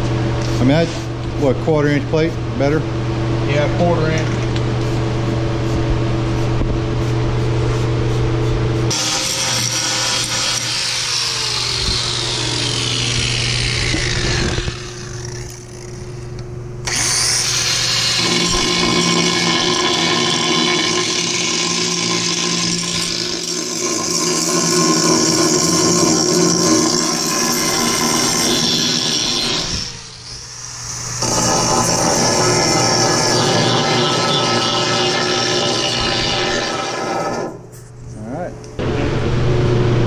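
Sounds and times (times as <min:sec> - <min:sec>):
steady hum: 0:00.0 - 0:40.0
angle grinder grinding steel: 0:08.9 - 0:37.8.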